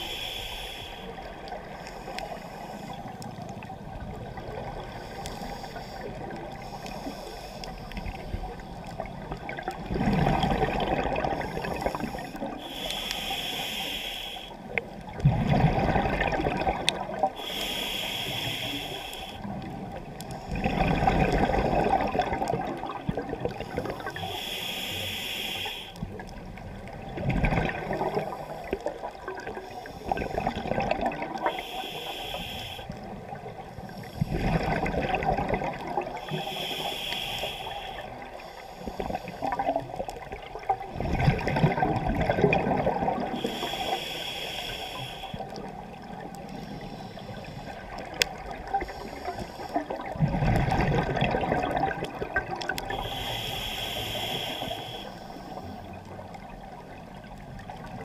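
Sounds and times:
regulator hissing on inhalation: 0.0 - 1.2, 11.4 - 14.6, 17.4 - 19.5, 23.9 - 26.0, 31.4 - 33.0, 36.2 - 39.5, 43.4 - 45.6, 52.8 - 55.7
exhaled bubbles gurgling: 0.0 - 58.0.

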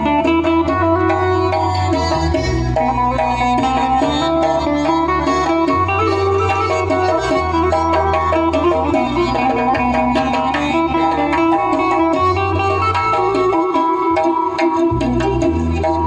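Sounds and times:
accordion: 0.0 - 16.0
keyboard bass line: 0.0 - 16.0
plucked string melody: 0.0 - 16.0.

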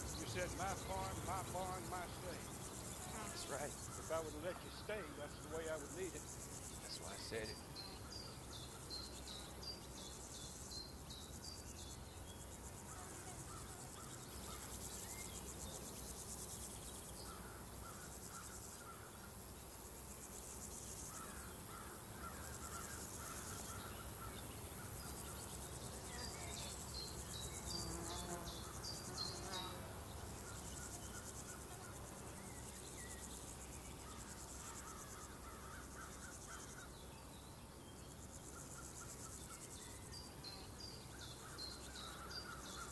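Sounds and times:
birds chirping: 0.0 - 19.2
crickets and insects droning: 0.0 - 42.9.

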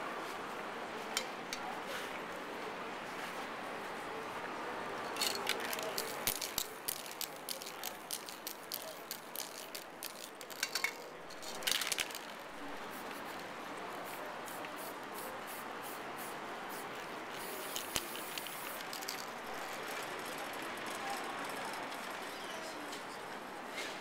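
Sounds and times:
spray-paint can hissing: 5.2 - 19.4.

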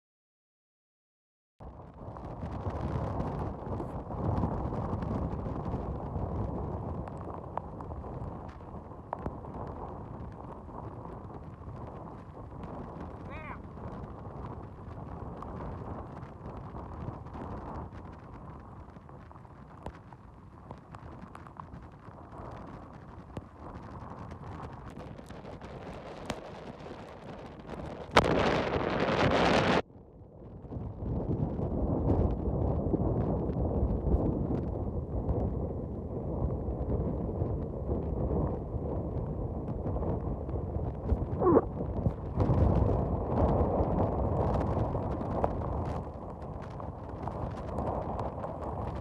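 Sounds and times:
wind and rain on microphone: 1.6 - 49.0
rain and spray ticking: 6.4 - 29.0
wind whistle: 41.1 - 42.6.

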